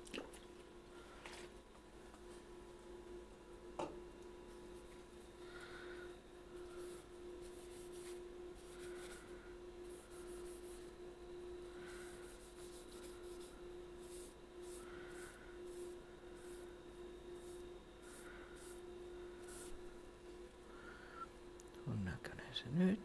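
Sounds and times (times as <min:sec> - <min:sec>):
paper pad rubbing on wood: 0:06.7 - 0:11.0, 0:11.7 - 0:16.7, 0:17.3 - 0:18.8, 0:19.4 - 0:19.8.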